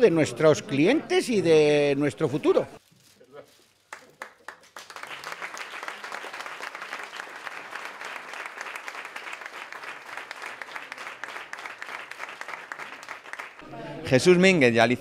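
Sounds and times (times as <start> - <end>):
audience applauding: 3.9 - 13.6.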